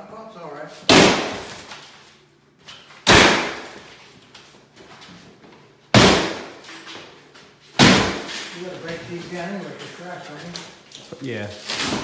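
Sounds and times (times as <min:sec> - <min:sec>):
sledgehammer hitting drywall: 0:00.8 - 0:01.7, 0:03.0 - 0:03.9, 0:05.9 - 0:06.8, 0:07.7 - 0:08.6.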